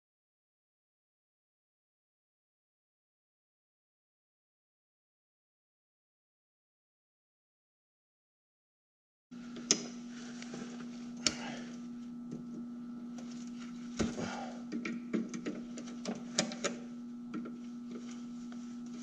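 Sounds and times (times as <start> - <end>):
steady low hum: 9.3 - 19.0.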